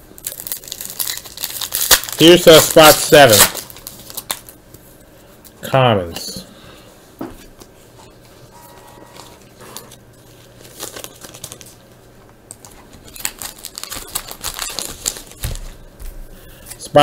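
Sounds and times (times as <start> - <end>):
shiny wrapper crinkling: 0.2 - 4.6, 9.2 - 11.8, 12.5 - 15.8.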